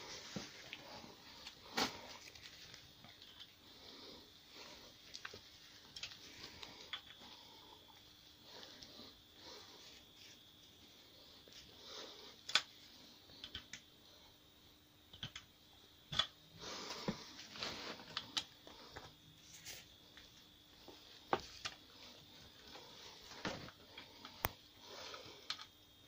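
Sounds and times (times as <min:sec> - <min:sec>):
hex key clicks and taps: 0:15.1 - 0:15.5.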